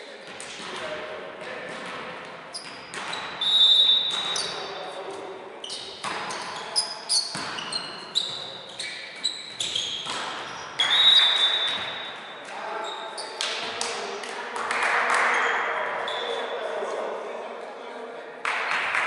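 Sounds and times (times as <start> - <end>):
shoes squeaking on floor: 2.5 - 13.6, 16.0 - 16.6.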